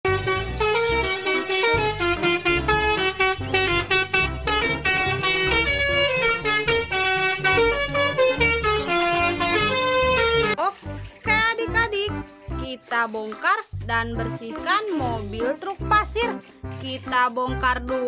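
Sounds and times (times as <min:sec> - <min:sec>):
musical bus horn playing tune: 0:00.0 - 0:10.6.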